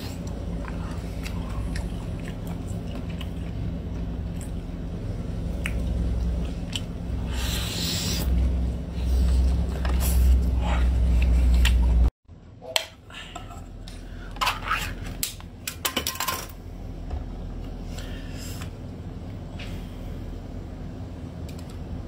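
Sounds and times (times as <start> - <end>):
wet slurping and chewing: 0.0 - 4.8, 5.4 - 12.0.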